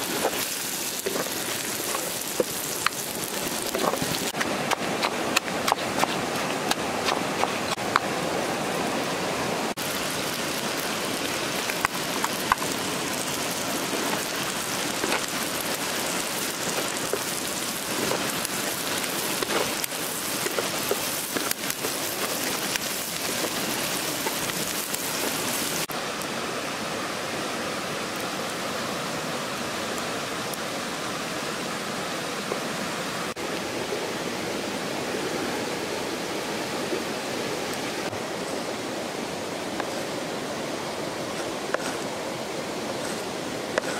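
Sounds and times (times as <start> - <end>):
chilies sizzling in oil: 0.0 - 4.4, 9.8 - 25.9.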